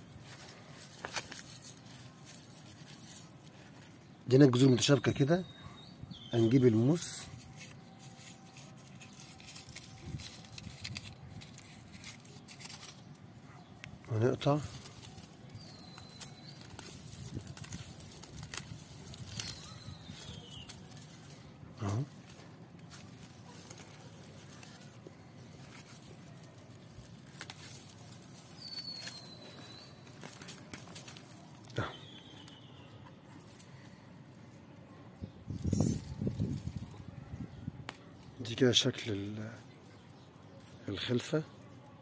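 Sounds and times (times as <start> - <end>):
light ticks of handling: 0.2 - 4.0, 7.0 - 34.5
faint rustling: 7.0 - 31.8.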